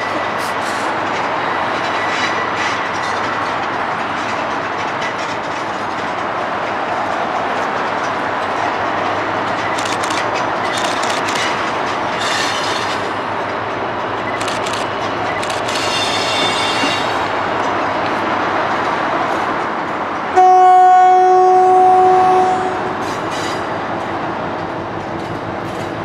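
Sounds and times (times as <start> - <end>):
train wheels clattering: 0.0 - 20.3, 22.7 - 26.0
diesel locomotive engine drone: 0.0 - 26.0
sharp metallic clicks: 9.5 - 11.8, 14.2 - 16.0.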